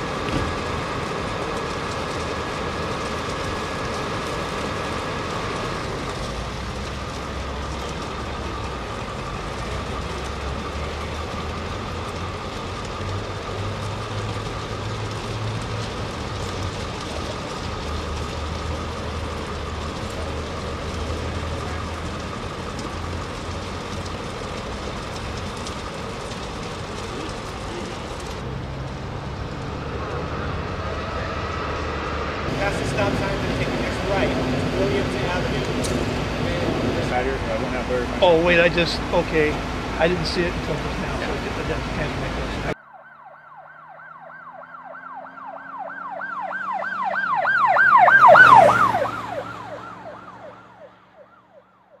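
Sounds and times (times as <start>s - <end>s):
train rumbling on tracks: 0.0s - 42.8s
vehicle engine passing: 0.0s - 52.0s
siren yelping: 42.7s - 52.0s.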